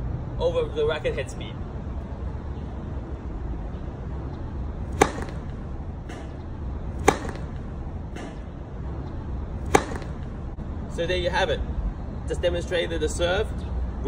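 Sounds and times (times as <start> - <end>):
steady low rumble: 1.6 - 12.0
racket striking tennis ball: 4.8 - 8.7, 9.5 - 10.6.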